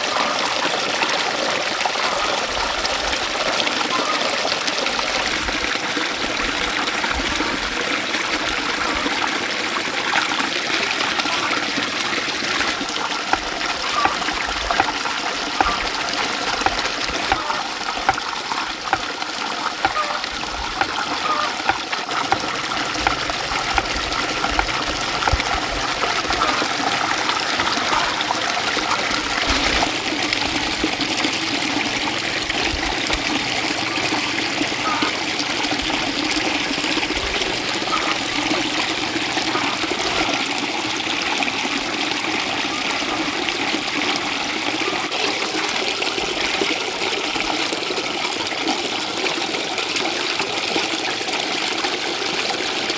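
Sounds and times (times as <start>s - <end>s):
water running and trickling: 0.0s - 52.9s.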